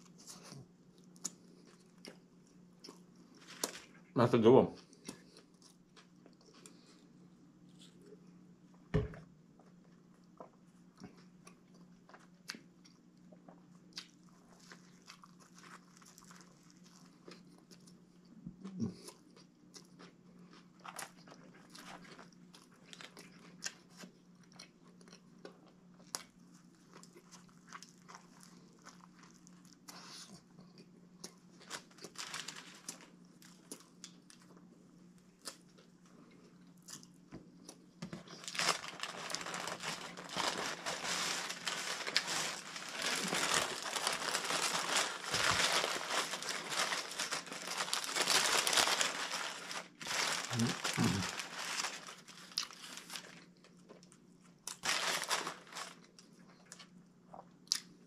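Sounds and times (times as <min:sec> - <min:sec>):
chewing and biting sandwich: 0:09.6 - 0:58.0
wrapper paper crinkling: 0:31.6 - 0:33.1, 0:38.2 - 0:53.4, 0:54.7 - 0:56.1.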